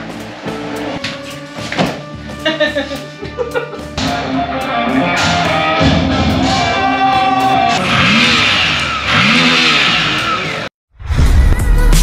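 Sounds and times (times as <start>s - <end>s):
rock music with guitar: 0.0s - 8.2s.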